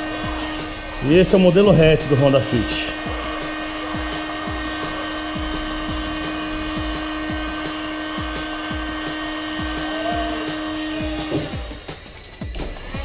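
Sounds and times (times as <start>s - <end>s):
heat gun whining: 0.0s - 13.0s
music with kick-drum beat: 0.0s - 13.0s.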